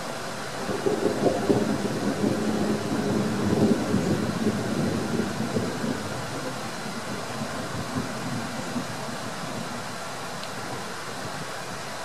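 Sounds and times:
rolling thunder: 0.6 - 9.6.

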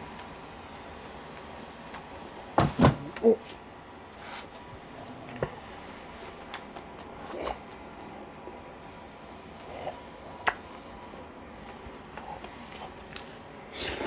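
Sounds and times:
man chewing with wet smacks: 6.4 - 14.0.

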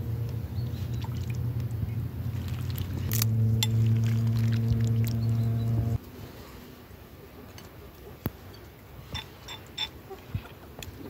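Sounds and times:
steady low hum: 0.0 - 7.4
soup being ladled: 2.3 - 5.6.

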